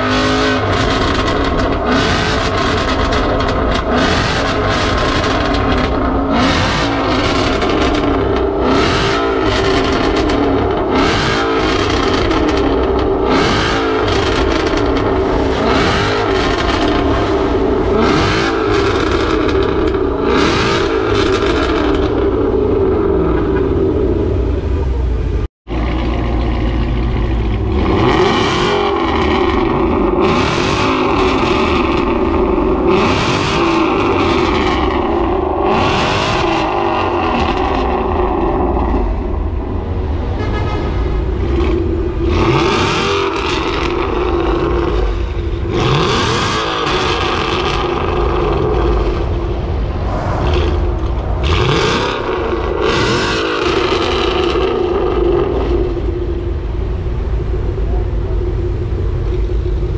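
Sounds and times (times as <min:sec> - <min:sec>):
car engine idling and revving: 0:00.0 - 0:59.9.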